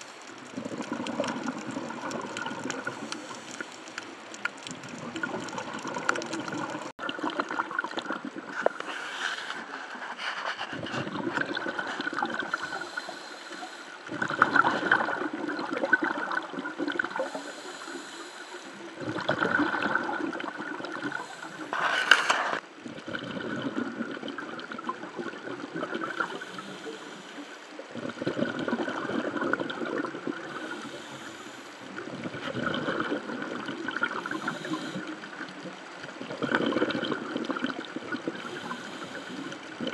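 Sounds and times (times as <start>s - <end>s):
exhaled air bubbles gurgling: 0.0s - 39.9s
diver breathing through regulator: 8.6s - 15.0s, 17.2s - 18.9s, 26.2s - 27.6s, 30.5s - 33.1s, 34.2s - 35.2s, 38.4s - 39.6s.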